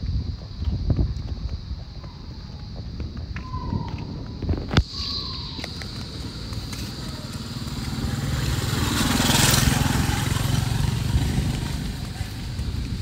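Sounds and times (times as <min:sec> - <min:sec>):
motorcycle engine running: 0:04.9 - 0:13.0.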